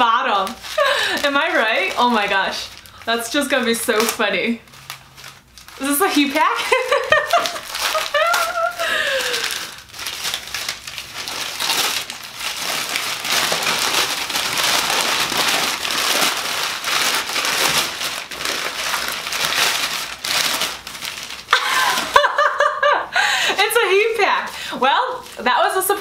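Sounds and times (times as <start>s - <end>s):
paper crumpling: 0.0s - 22.8s, 23.5s - 26.0s
person laughing: 6.6s - 9.7s, 21.5s - 23.6s.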